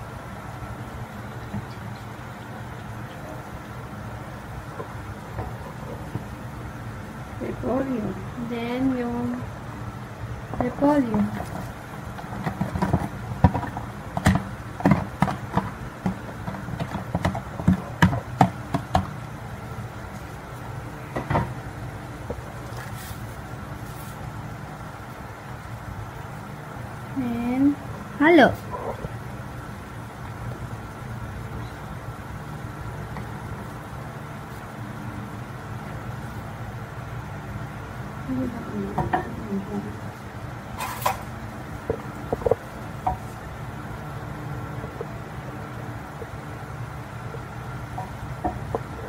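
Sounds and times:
low motor hum: 0:00.0 - 0:49.0
spatula tapping plastic container: 0:12.2 - 0:19.2.

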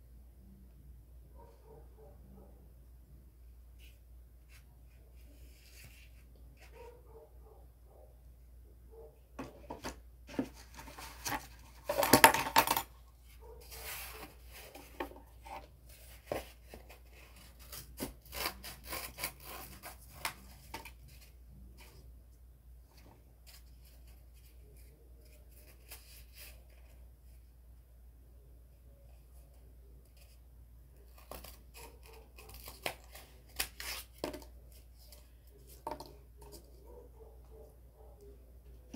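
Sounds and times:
rustling and scraping: 0:03.6 - 0:07.0, 0:09.4 - 0:22.1
scissors cutting cardboard: 0:13.6 - 0:21.2, 0:31.0 - 0:34.5.

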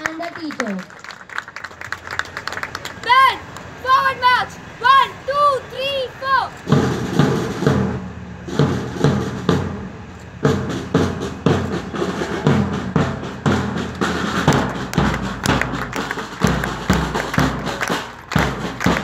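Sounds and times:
marching band drums: 0:06.2 - 0:19.0.

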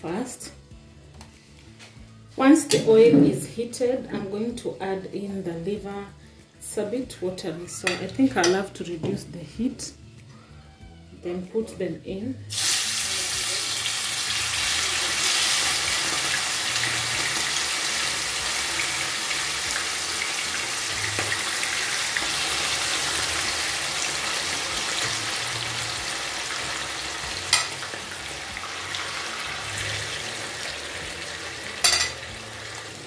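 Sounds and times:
liver sizzling in hot oil: 0:12.5 - 0:33.0
spoon clinking: 0:27.5 - 0:27.8, 0:31.8 - 0:32.2
metal spoon stirring: 0:31.8 - 0:32.2.

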